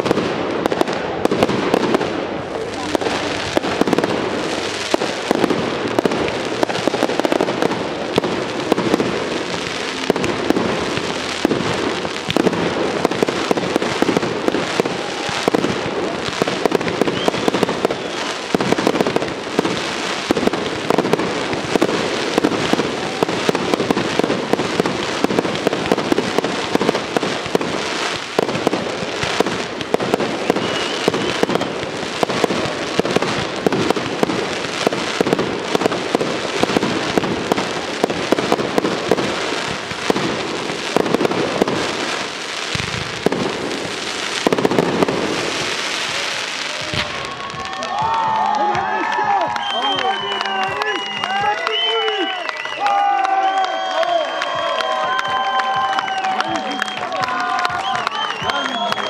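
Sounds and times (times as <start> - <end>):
fireworks crackling and popping: 0.0 - 59.0
faint firework whistle: 16.6 - 18.6, 29.4 - 32.4, 49.4 - 59.0.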